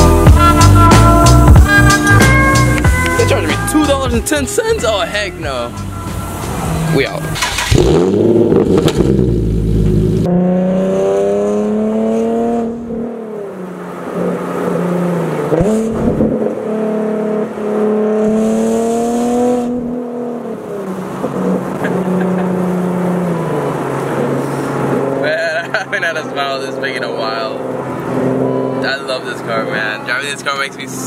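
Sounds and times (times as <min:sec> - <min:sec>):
car engine accelerating through gears: 0:05.7 - 0:30.2.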